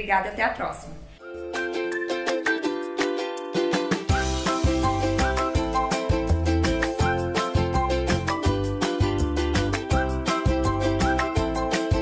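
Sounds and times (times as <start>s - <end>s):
upbeat plucked-string music: 0.2s - 12.0s.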